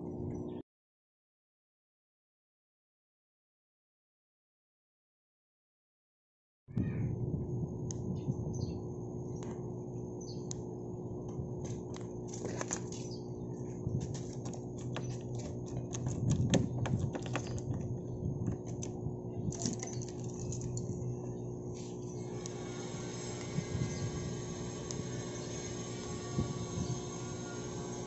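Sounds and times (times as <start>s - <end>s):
steady low hum: 7.0s - 28.0s.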